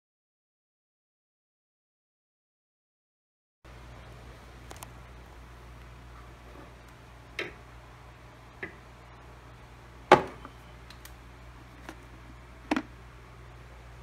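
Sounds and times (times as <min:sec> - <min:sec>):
faint steady hum: 0:03.7 - 0:14.0.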